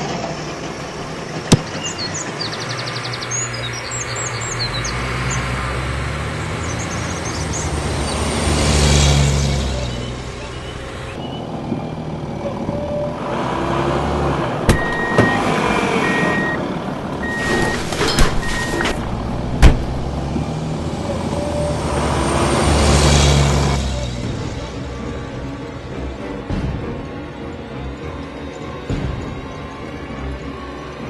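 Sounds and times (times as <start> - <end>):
garbage truck engine: 0.0 - 31.0
road traffic: 0.0 - 31.0
car passing by: 4.3 - 10.6, 17.2 - 24.8
reversing beeper: 14.7 - 19.0.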